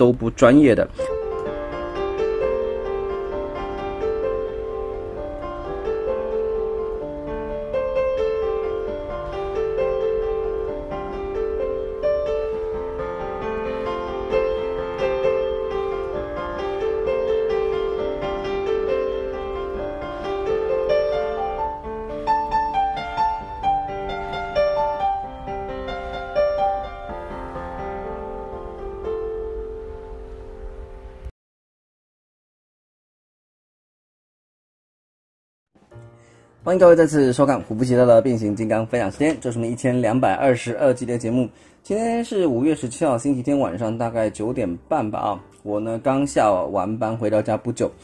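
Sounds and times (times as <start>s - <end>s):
piano music: 0.0s - 31.3s, 35.8s - 48.0s.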